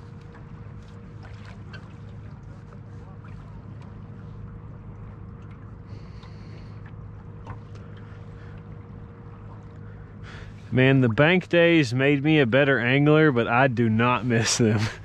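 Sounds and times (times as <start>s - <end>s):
boat motor humming: 0.0s - 15.0s
choppy water: 0.0s - 15.0s.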